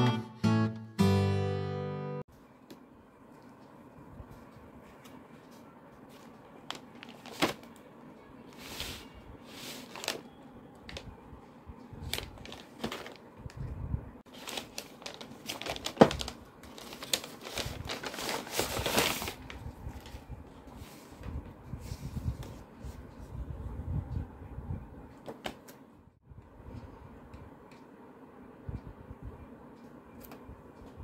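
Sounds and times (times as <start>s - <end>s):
paper envelope crinkling: 6.1s - 7.8s, 9.7s - 10.4s, 12.0s - 13.3s, 14.3s - 20.3s.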